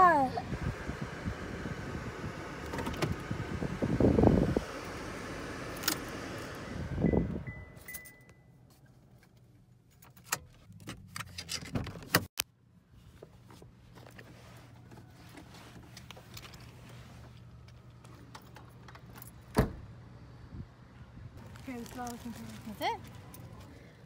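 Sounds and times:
car keys jangling: 7.8s - 8.4s.

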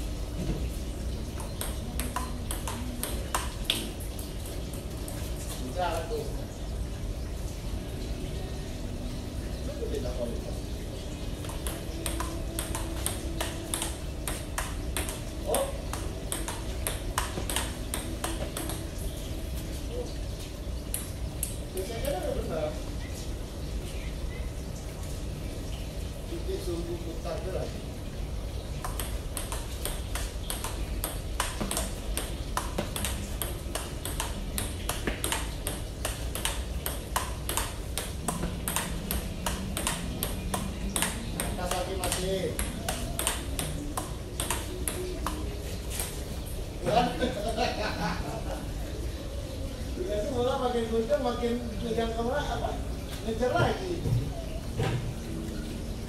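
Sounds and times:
table tennis ball clicking: 1.4s - 3.9s, 11.4s - 18.8s, 28.8s - 46.2s.

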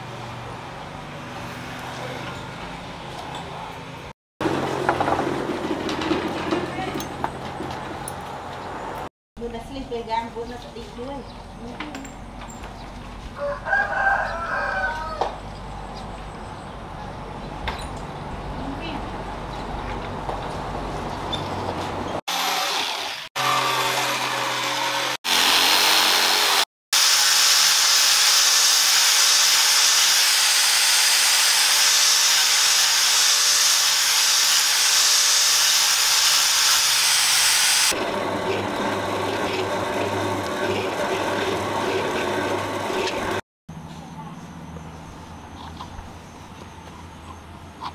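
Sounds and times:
angle grinder sanding wood: 22.3s - 43.4s
drill press drilling: 22.4s - 43.4s.

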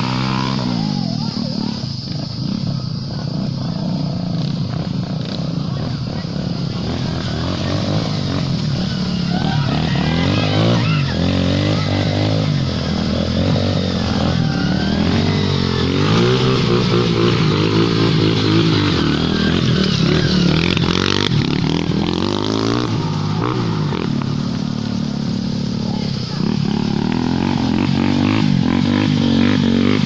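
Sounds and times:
motorcycle engines revving: 0.0s - 30.0s.

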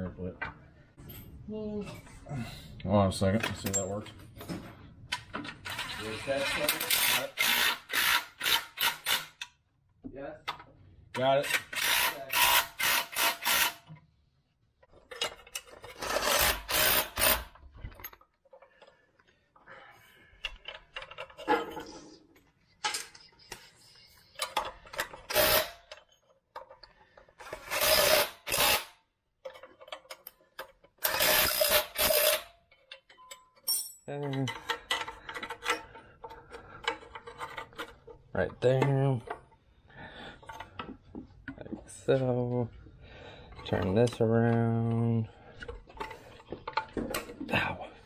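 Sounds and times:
cordless drill driving bolts: 5.7s - 9.5s, 11.5s - 13.8s, 15.9s - 17.6s, 24.9s - 26.0s, 27.4s - 28.9s, 31.0s - 32.5s.

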